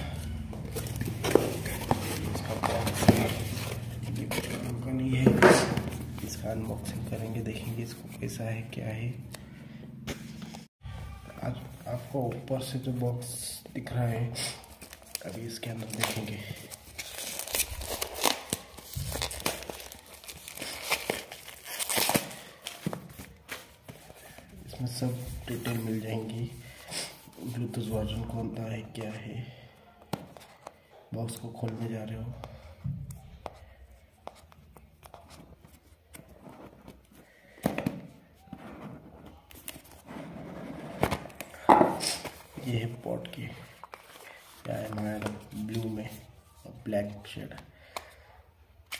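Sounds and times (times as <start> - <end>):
cardboard box being opened: 0.6 - 4.8
packaging crinkling and rustling: 14.5 - 24.5.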